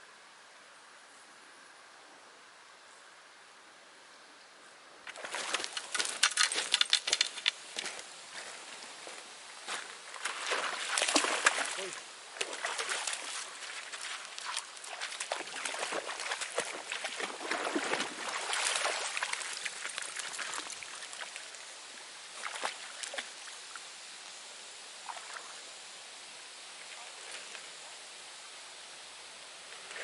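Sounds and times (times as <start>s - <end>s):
dog splashing through water: 5.1s - 7.4s, 10.2s - 21.6s, 22.4s - 23.3s.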